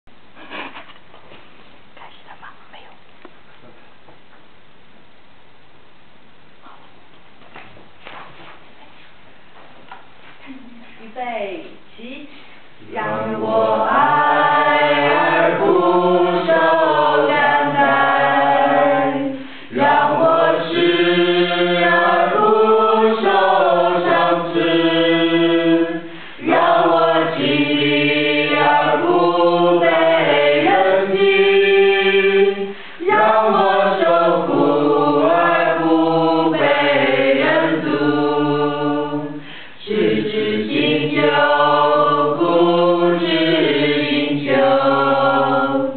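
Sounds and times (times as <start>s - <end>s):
choir singing: 12.8s - 45.9s.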